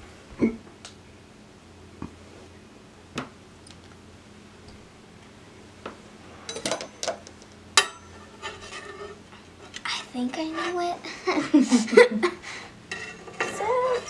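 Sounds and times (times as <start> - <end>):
metal utensils clinking: 6.5 - 7.2, 12.9 - 14.0.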